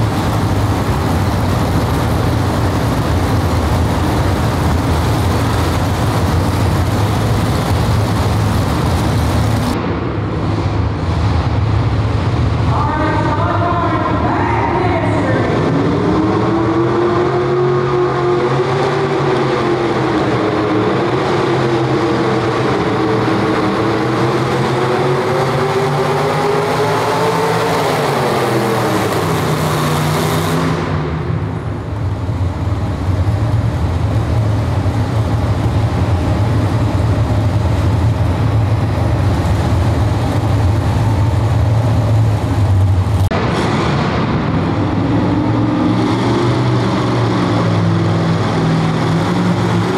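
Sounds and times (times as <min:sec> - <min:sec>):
truck engine at high revs: 0:00.0 - 0:12.7, 0:15.4 - 0:49.9.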